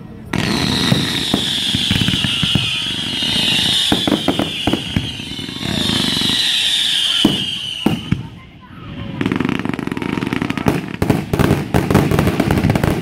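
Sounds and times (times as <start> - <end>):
high screaming firework whistle: 0.3 - 8.4
firework bangs and pops: 0.3 - 8.5, 9.1 - 13.0.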